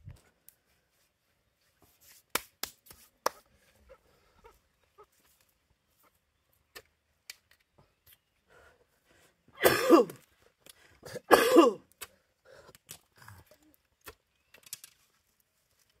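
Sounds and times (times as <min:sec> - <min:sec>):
man coughing: 0:09.6 - 0:10.2, 0:11.1 - 0:11.8.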